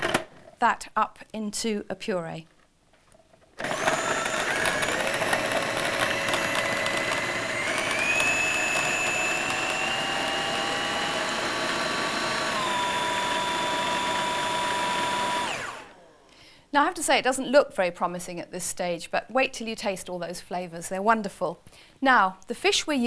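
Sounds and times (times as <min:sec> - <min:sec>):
food processor motor whine: 0:03.6 - 0:16.3.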